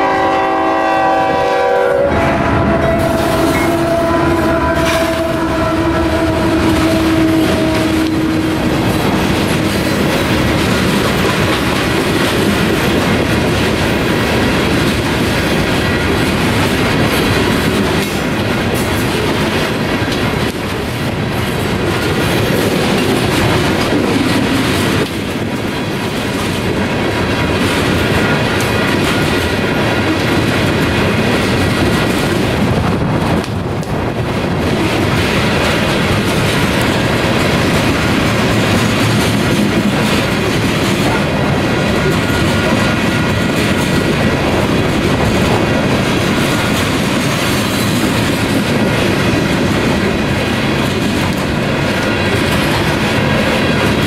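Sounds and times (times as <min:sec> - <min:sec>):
locomotive horn: 0:00.0 - 0:10.0
diesel locomotive engine: 0:00.0 - 0:54.0
wind buffeting microphone: 0:00.0 - 0:54.0
wheels clicking over rail joints: 0:03.2 - 0:54.0.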